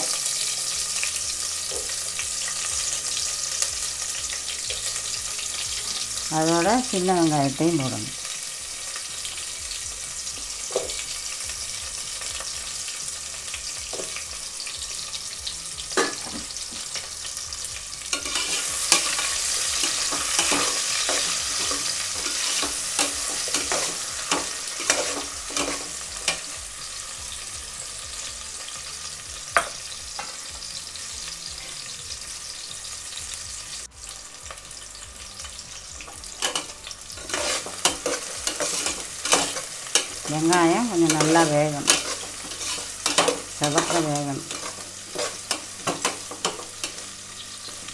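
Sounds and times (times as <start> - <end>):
onions frying in hot oil: 0.0 - 47.9
metal spatula scraping a pot: 18.1 - 26.5, 36.4 - 40.3, 41.1 - 47.8.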